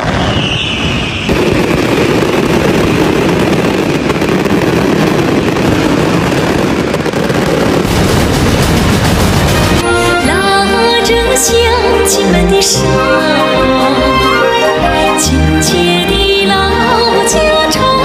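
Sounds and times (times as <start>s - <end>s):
falling firework whistle: 0.0s - 10.2s
fireworks crackling: 0.0s - 18.0s.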